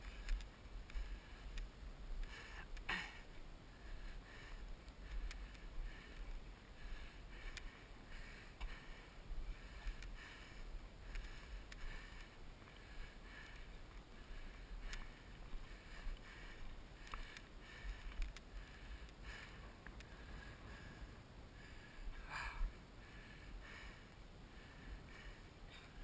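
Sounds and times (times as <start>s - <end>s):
light clicks: 0.0s - 2.9s, 4.8s - 6.4s, 7.5s - 7.7s, 14.8s - 15.1s, 17.0s - 20.2s
heavy labored breathing: 0.0s - 26.0s
low wind rumble: 0.0s - 26.0s.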